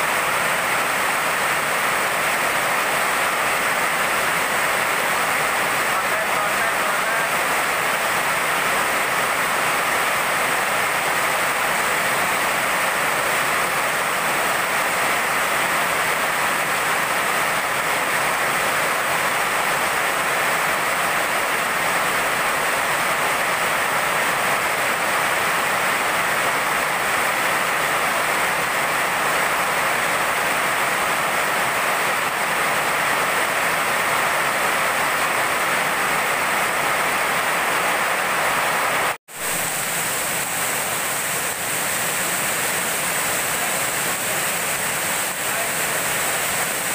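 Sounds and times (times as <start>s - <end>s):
heavy rain on wet pavement: 0.0s - 46.9s.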